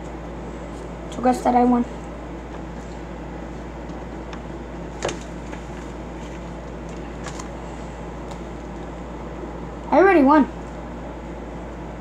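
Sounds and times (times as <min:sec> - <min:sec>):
room hum: 0:00.0 - 0:12.0.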